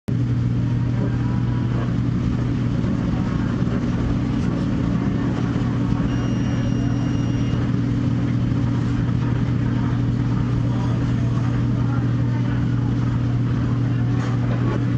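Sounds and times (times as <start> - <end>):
machinery low hum: 0.1 - 14.9
faint high tone: 6.0 - 7.7.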